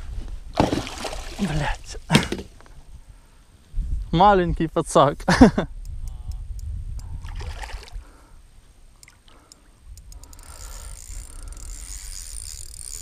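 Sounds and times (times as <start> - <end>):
water splashing at boat side: 0.5 - 1.6.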